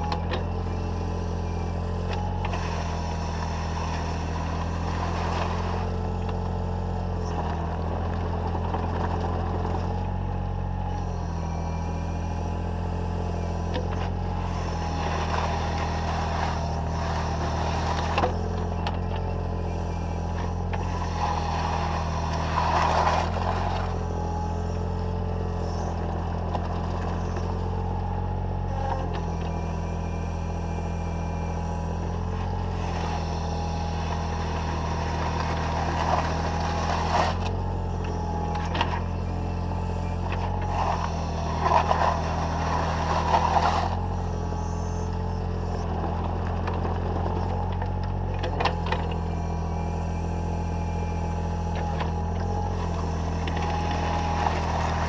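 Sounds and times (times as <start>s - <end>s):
excavator diesel engine running: 0.0s - 55.0s
steel bucket scraping gravel: 20.7s - 23.7s, 34.2s - 37.6s, 40.4s - 44.2s, 52.8s - 55.0s.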